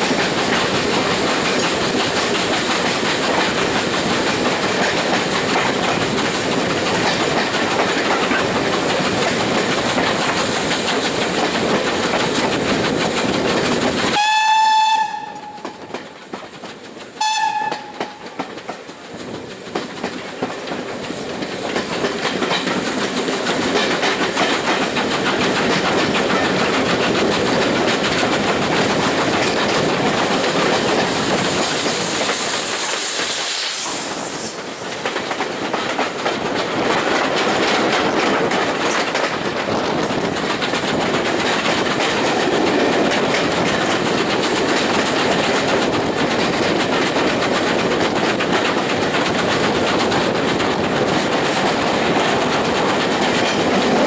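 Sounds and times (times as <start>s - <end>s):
steam hiss: 0.0s - 17.2s, 17.8s - 36.8s
train clickety-clack on rails: 0.0s - 54.0s
steam locomotive whistle: 14.1s - 15.9s, 17.2s - 18.3s.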